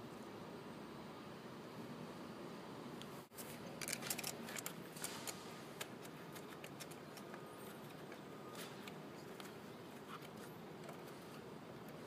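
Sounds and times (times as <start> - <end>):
hands handling things clicking: 3.8 - 11.2.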